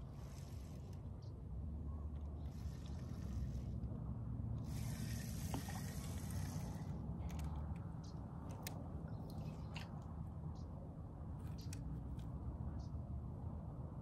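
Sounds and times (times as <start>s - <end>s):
hiss: 4.7s - 6.8s.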